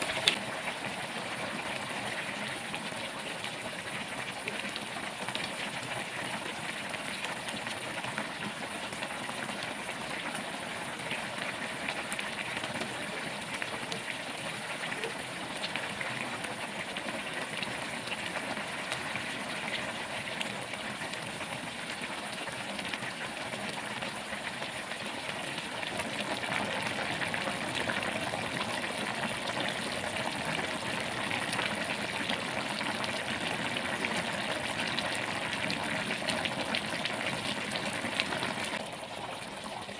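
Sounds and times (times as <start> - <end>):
small pops and crackles: 0.0 - 0.5
broth bubbling in a pot: 0.0 - 39.9.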